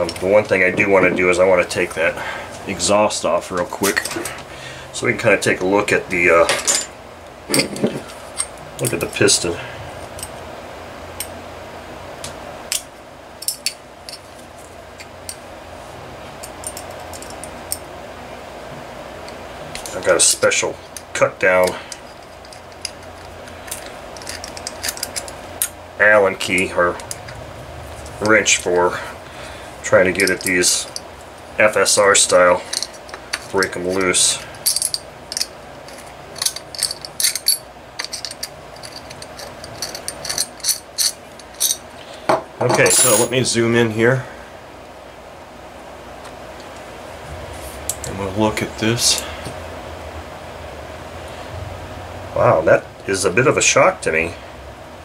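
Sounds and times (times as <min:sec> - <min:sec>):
low hum: 0:06.5 - 0:43.6
metal engine handled clicking: 0:21.9 - 0:25.8.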